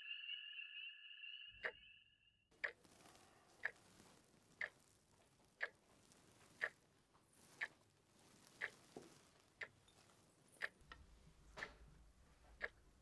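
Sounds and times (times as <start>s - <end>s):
high steady tone: 0.0s - 2.5s
clock ticking: 2.5s - 13.0s.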